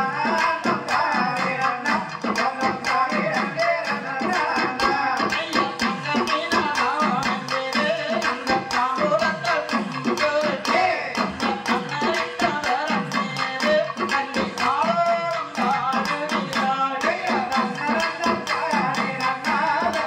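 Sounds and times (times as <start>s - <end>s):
man singing: 0.0s - 20.0s
quick percussion beat: 0.0s - 20.0s.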